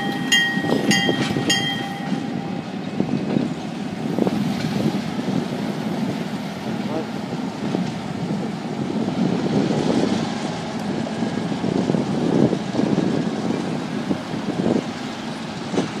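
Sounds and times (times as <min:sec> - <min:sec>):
street traffic rumble: 0:00.0 - 0:16.0
wind buffeting microphone: 0:00.0 - 0:16.0.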